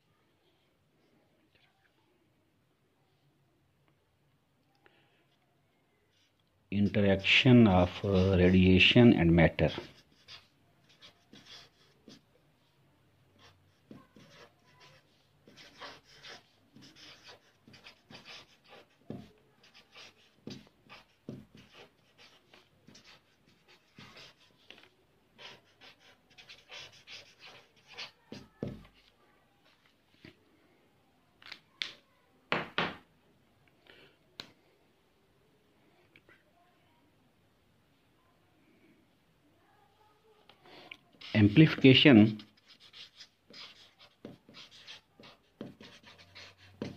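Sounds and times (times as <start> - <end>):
marker scratching on paper: 9.5 - 12.3, 13.4 - 29.9, 41.1 - 46.9.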